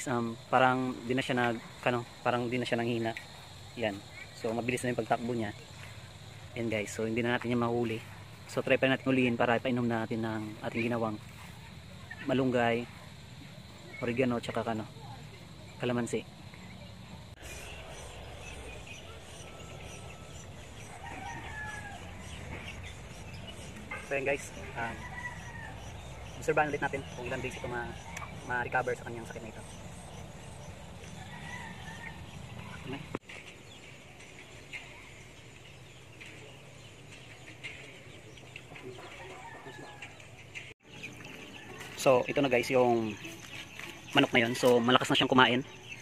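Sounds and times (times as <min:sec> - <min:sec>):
faint chicken calls: 0:14.8 - 0:33.7, 0:34.4 - 0:46.0.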